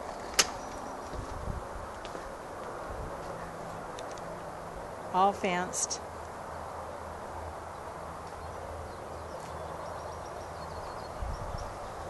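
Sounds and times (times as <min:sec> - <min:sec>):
birds chirping: 0:00.0 - 0:01.3, 0:07.7 - 0:12.0.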